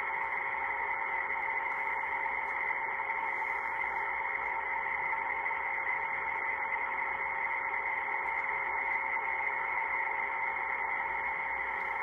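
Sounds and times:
faint constant hum: 0:00.0 - 0:12.0
muffled hiss: 0:00.0 - 0:12.0.

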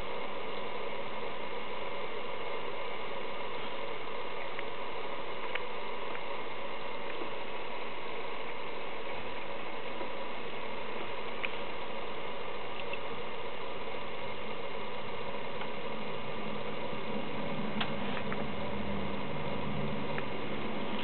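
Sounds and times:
steady hiss: 0:00.0 - 0:21.0
faint clicks: 0:12.7 - 0:13.1.

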